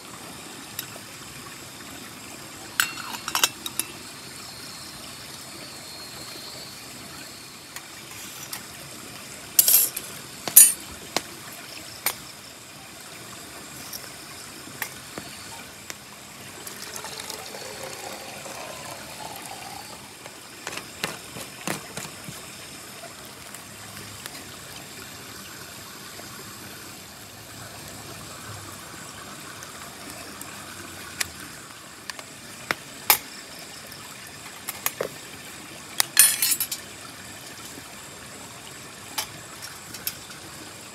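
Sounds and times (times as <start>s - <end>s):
flowing water: 0.0s - 40.9s
metal pot and lid clinking: 2.8s - 4.0s, 9.6s - 10.8s, 36.0s - 36.8s
water pouring into a bottle: 13.7s - 24.5s.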